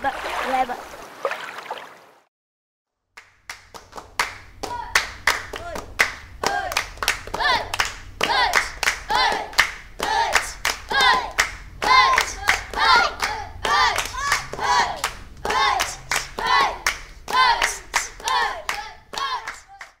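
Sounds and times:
hands clapping rhythm: 0:03.2 - 0:20.0
high voices singing: 0:04.6 - 0:20.0.

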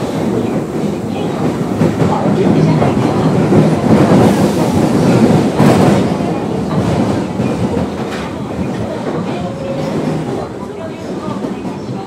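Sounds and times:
clickety-clack over rail joints: 0:00.0 - 0:12.0
subway train wheels rumbling on rails: 0:00.0 - 0:12.0.

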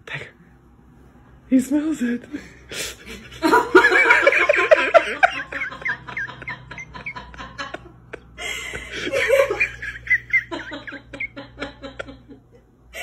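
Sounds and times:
person giggling: 0:03.0 - 0:13.0.

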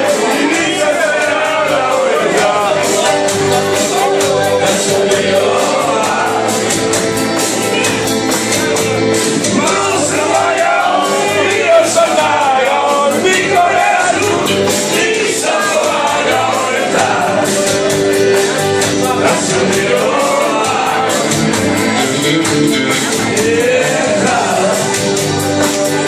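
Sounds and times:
guitar: 0:00.0 - 0:26.0
man singing into a microphone: 0:09.5 - 0:17.6, 0:18.9 - 0:21.3, 0:22.0 - 0:25.0.

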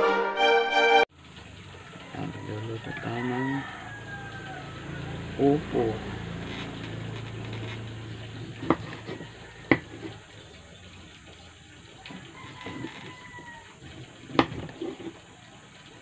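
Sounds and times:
knife chopping on wooden board: 0:08.5 - 0:10.2, 0:14.3 - 0:15.1.

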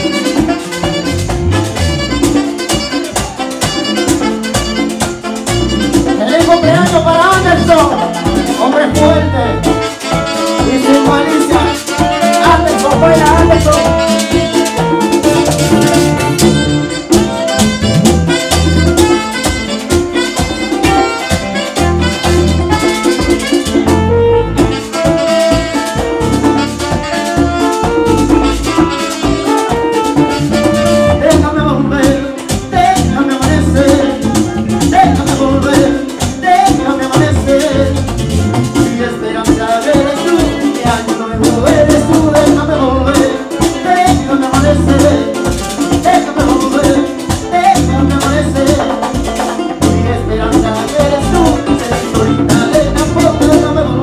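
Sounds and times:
saxophone: 0:00.0 - 0:39.1, 0:39.9 - 0:54.0
live latin band playing: 0:00.0 - 0:54.0
person singing: 0:05.7 - 0:17.4, 0:30.5 - 0:54.0.

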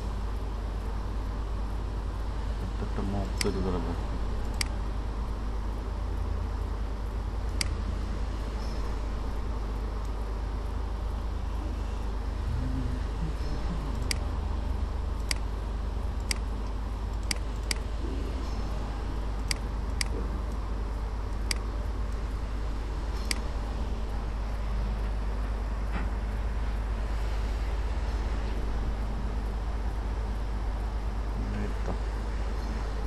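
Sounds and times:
low hum and hiss: 0:00.0 - 0:33.0
computer mouse clicking: 0:03.4 - 0:03.6, 0:04.4 - 0:04.8, 0:07.5 - 0:07.8, 0:15.2 - 0:15.5, 0:16.2 - 0:17.9, 0:19.4 - 0:20.6, 0:21.3 - 0:22.3, 0:23.2 - 0:23.5.

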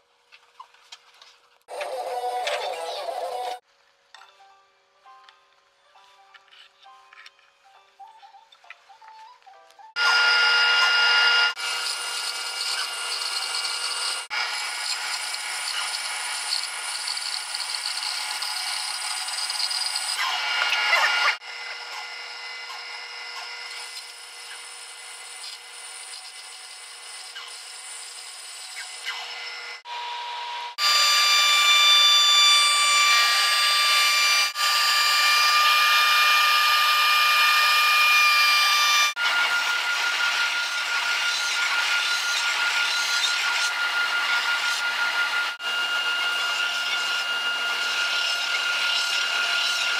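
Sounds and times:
shop machines whining: 0:09.9 - 0:49.9
bandsaw cutting: 0:10.0 - 0:49.9.

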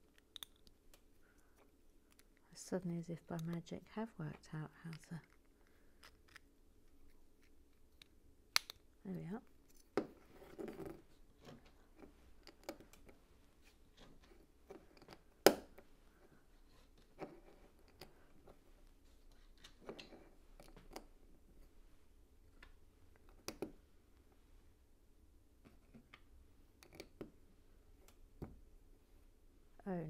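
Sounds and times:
plastic toy bricks clicking: 0:00.1 - 0:00.8.

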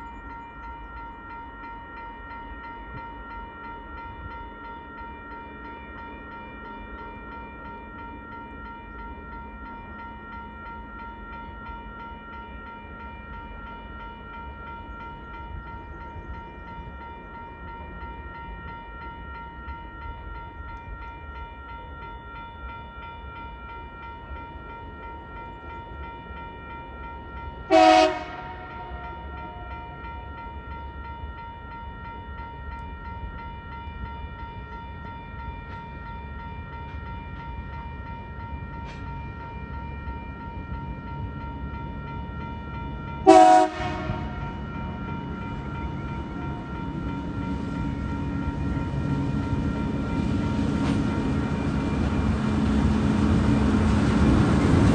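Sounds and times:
locomotive horn blast: 0:27.7 - 0:29.2, 0:43.2 - 0:44.4.

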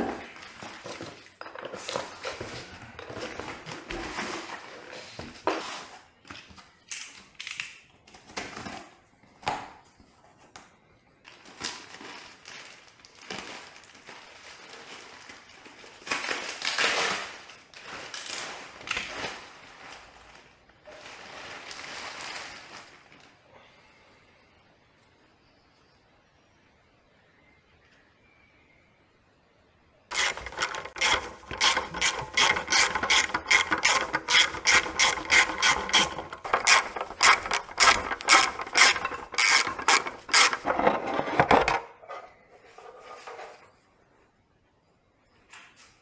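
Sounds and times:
plastic and cardboard crinkling: 0:00.0 - 0:06.8, 0:10.1 - 0:23.4, 0:30.1 - 0:42.0.

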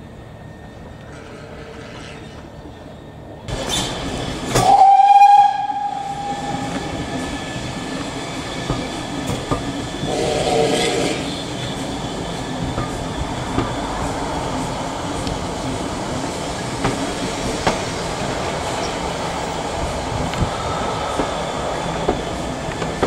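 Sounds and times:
train running noise: 0:00.0 - 0:23.0
steam train whistle: 0:04.6 - 0:07.0, 0:10.0 - 0:11.5.

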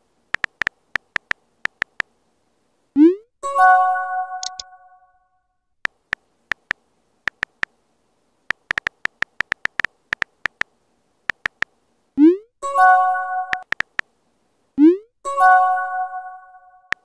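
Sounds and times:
phone keyboard clicks: 0:00.3 - 0:02.1, 0:04.4 - 0:04.6, 0:05.8 - 0:07.7, 0:08.5 - 0:10.7, 0:11.3 - 0:11.7, 0:13.5 - 0:14.1.

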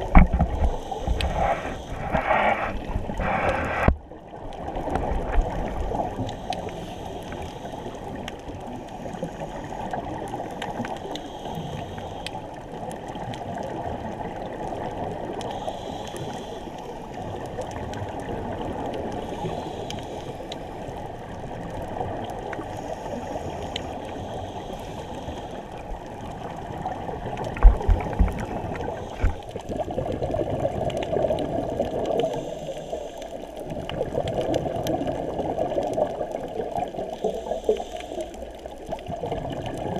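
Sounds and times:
gurgle of exhaled bubbles: 0:00.0 - 0:11.2, 0:25.8 - 0:39.9
muffled underwater wash: 0:00.0 - 0:39.9.

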